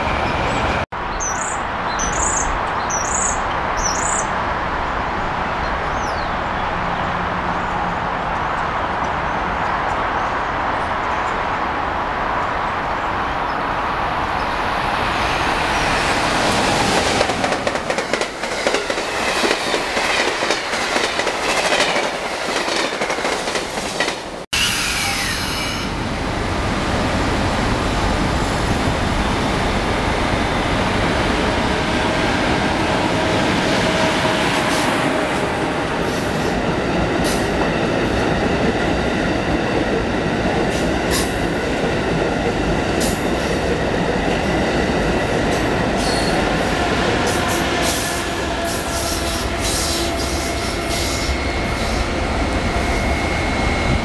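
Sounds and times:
high train squeal: 0.0 - 4.4, 14.3 - 21.6, 24.6 - 26.0, 27.0 - 38.6, 43.0 - 54.0
train passing: 0.0 - 54.0.

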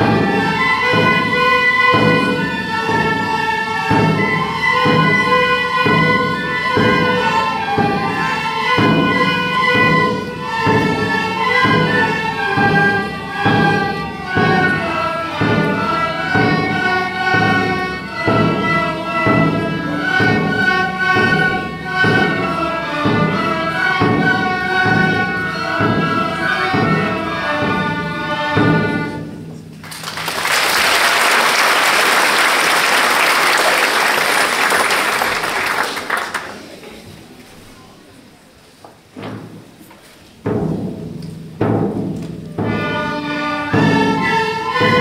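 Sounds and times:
tin whistles and fiddles playing march: 0.0 - 27.6, 42.8 - 45.0
steady drum beat: 0.0 - 33.5, 40.4 - 45.0
audience applauding: 29.8 - 36.8.

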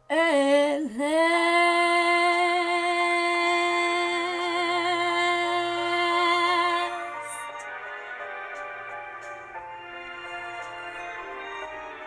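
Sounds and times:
woman singing a long note: 0.1 - 7.5.

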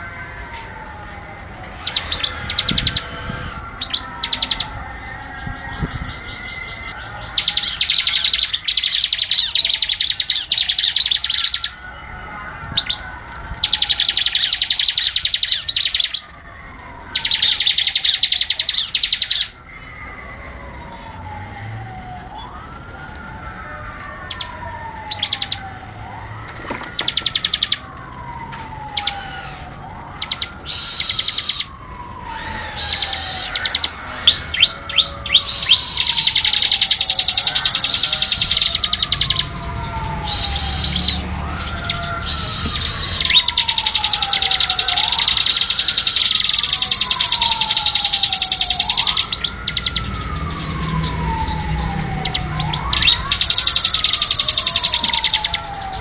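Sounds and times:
bird singing rapid chip notes: 1.7 - 11.8, 13.6 - 16.3, 17.1 - 19.6, 25.1 - 25.7, 26.9 - 27.9, 30.2 - 56.0
soft falling whistle: 42.3 - 43.4.

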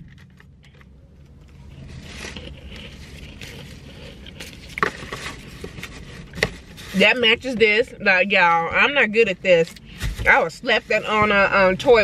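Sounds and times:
plastic packaging rustling: 0.0 - 7.0
low steady hum: 0.0 - 12.0.

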